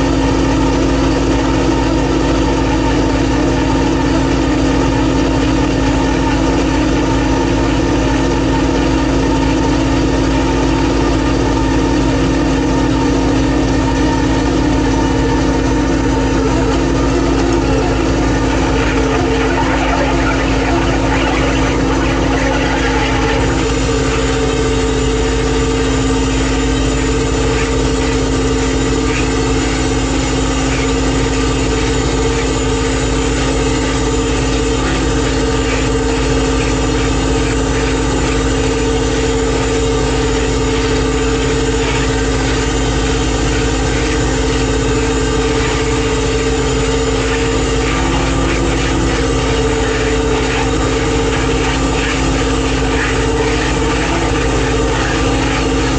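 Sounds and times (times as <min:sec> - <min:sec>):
boat engine humming: 0:12.5 - 0:55.9.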